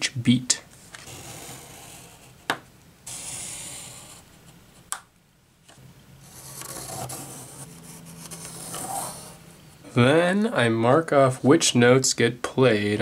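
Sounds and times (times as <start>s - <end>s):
pencil scratching on cardboard: 1.0s - 2.4s, 3.1s - 4.4s, 6.3s - 9.4s.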